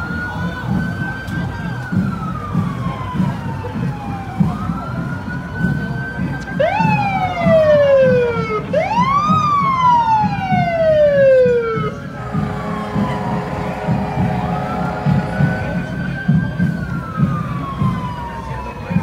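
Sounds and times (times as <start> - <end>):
emergency sirens wailing: 0.0 - 19.0.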